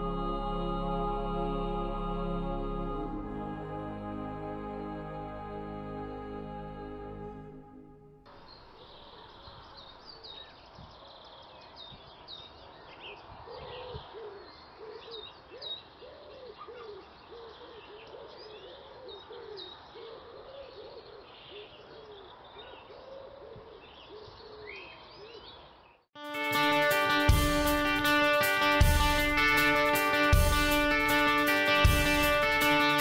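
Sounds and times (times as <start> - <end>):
songbirds chirping: 7.0 - 26.1
pigeons cooing: 13.4 - 25.4
guitar music: 26.2 - 33.0.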